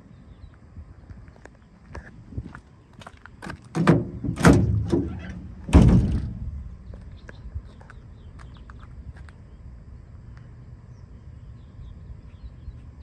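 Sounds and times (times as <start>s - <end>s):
tailgate latch clicking: 3.7s - 6.5s
tailgate metal clunk ringing: 3.7s - 6.8s.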